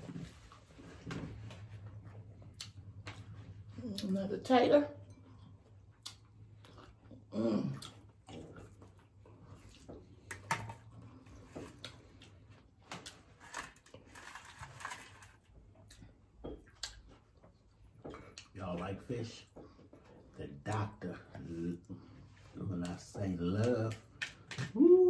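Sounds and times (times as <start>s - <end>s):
chewing and mouth smacks: 1.8s - 4.1s, 5.0s - 13.3s, 15.7s - 18.6s
small clicks and crackles: 12.9s - 15.5s
person humming: 24.7s - 25.0s.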